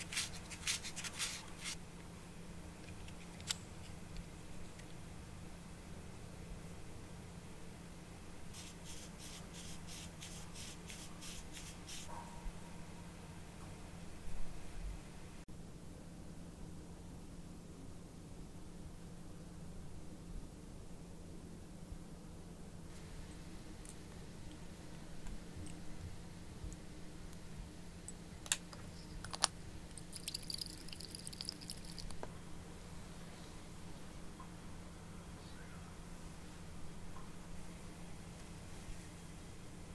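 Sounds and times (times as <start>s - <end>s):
fizzy crackling of foaming liquid: 29.9s - 32.2s.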